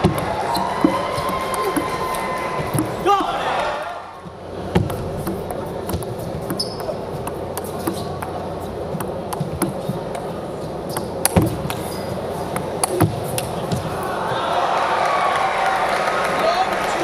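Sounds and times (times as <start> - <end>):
arena crowd hum: 0.0 - 17.0
table tennis ball clicking: 4.7 - 10.3.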